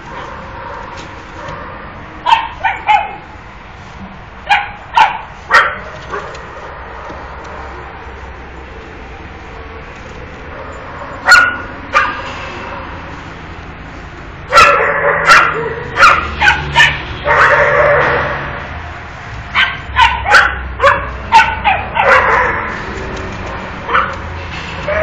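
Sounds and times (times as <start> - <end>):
dog barking: 0.2 - 3.3, 4.5 - 7.4, 10.6 - 12.2, 14.5 - 18.4, 19.5 - 22.8, 23.9 - 24.2.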